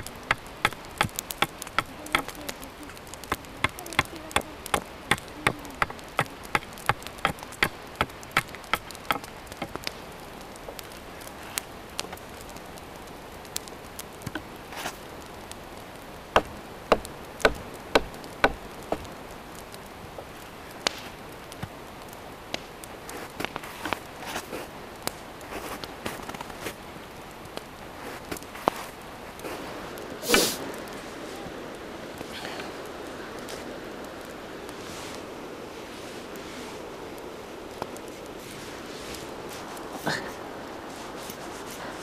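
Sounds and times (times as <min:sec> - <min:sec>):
hatchet chopping wood: 0:00.0 - 0:02.4, 0:06.5 - 0:09.8, 0:16.4 - 0:19.1.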